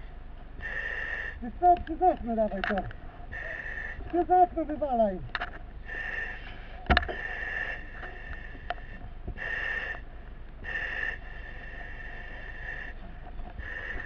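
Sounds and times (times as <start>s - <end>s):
breathing regulator hissing: 0.6s - 1.5s, 3.3s - 4.1s, 5.8s - 14.0s
light clicks: 1.8s - 3.0s, 5.3s - 5.7s.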